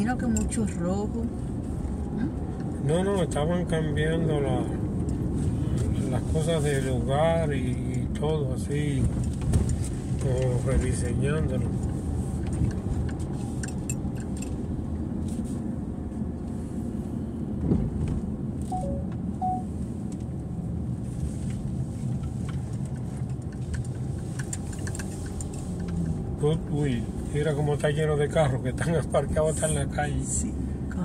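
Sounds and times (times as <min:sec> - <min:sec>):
engine and road rumble in car: 0:00.0 - 0:31.0
light clicks and rattles: 0:21.5 - 0:27.0.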